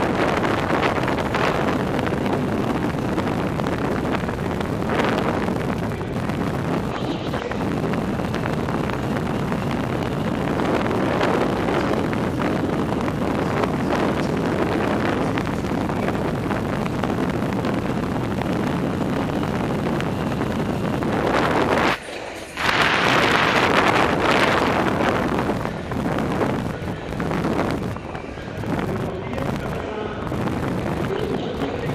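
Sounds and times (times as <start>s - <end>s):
wind rush on microphone: 0.0s - 31.9s.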